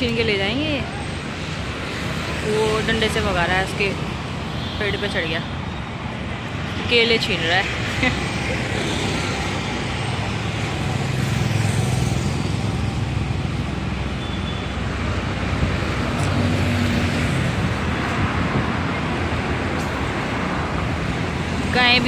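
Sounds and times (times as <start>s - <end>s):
rumble of passing vehicles: 0.0s - 22.0s.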